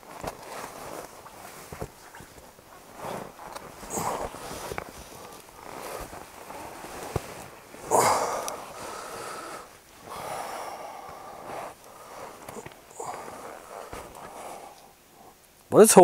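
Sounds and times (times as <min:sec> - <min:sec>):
fabric rustling: 0:00.0 - 0:15.6
man breathing: 0:02.9 - 0:15.5.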